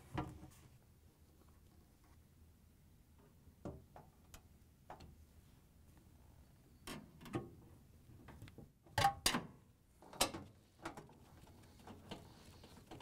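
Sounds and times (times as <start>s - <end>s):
light clicks and knocks of parts: 10.1s - 13.0s.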